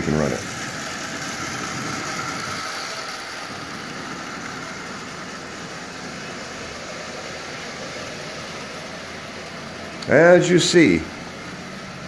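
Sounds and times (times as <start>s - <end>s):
steady hiss: 0.0s - 12.0s
toy train motor whirring: 0.0s - 12.0s.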